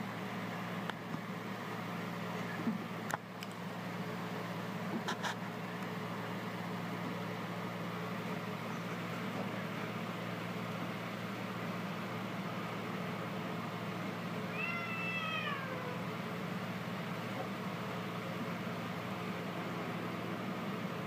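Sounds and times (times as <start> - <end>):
steady background hum: 0.0 - 21.0
cat meowing: 14.5 - 16.0.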